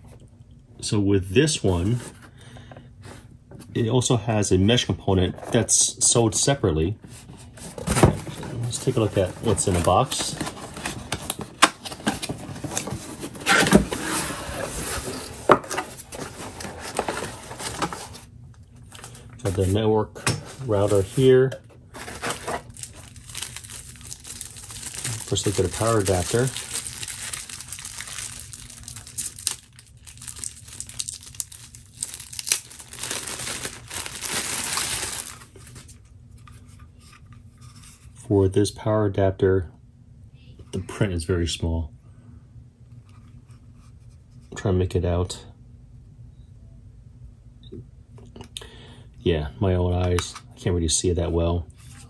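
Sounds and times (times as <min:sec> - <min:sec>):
cardboard scraping: 0:07.1 - 0:18.3, 0:22.0 - 0:28.2
plastic bag crinkling: 0:22.0 - 0:35.9.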